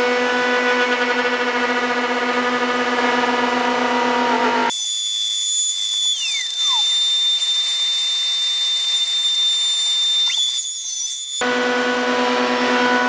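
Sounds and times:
router cutting wood whine: 0:03.4 - 0:13.0.

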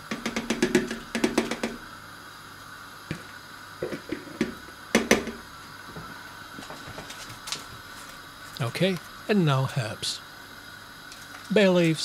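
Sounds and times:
bowl knocking against metal pot: 0:00.1 - 0:01.8.

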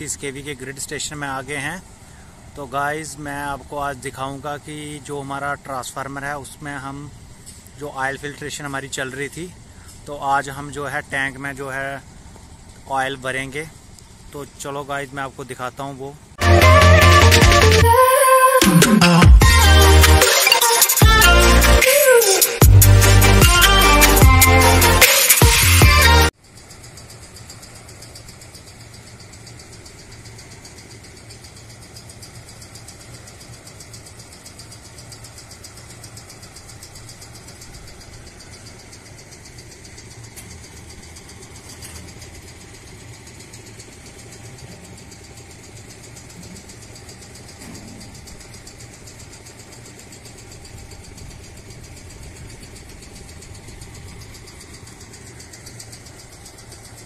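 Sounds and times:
pump motor pulsing: 0:26.0 - 0:57.0.

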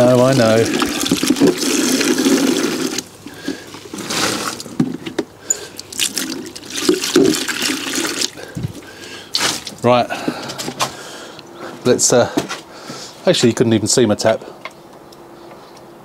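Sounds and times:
water pouring from bucket: 0:00.0 - 0:04.8, 0:05.8 - 0:09.8
water dripping and splashing: 0:00.3 - 0:04.7, 0:05.7 - 0:09.9.

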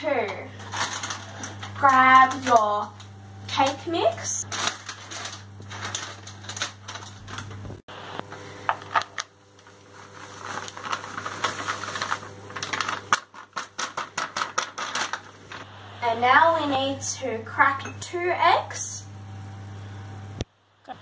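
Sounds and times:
plastic bag crinkling: 0:00.3 - 0:07.8, 0:08.5 - 0:15.7.

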